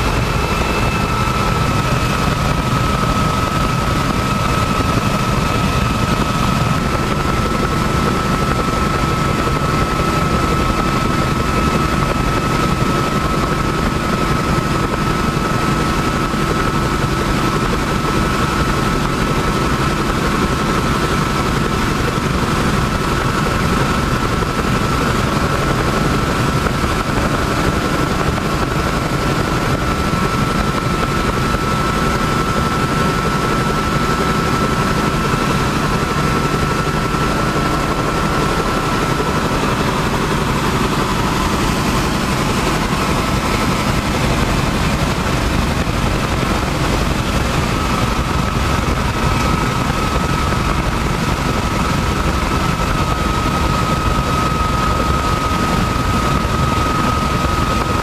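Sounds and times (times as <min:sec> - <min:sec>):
high whine: 0:00.0 - 0:13.5
helicopter rotor and engine rumble: 0:00.0 - 0:58.0.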